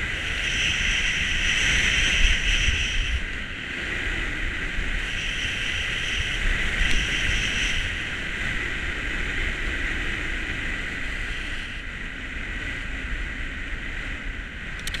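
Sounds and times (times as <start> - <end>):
skis hissing over snow: 0.0 - 3.6, 4.9 - 8.6
wind on microphone: 0.0 - 15.0.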